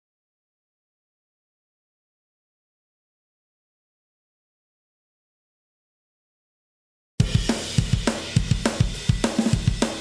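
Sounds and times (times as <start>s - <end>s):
drum kit backing track: 7.2s - 10.0s.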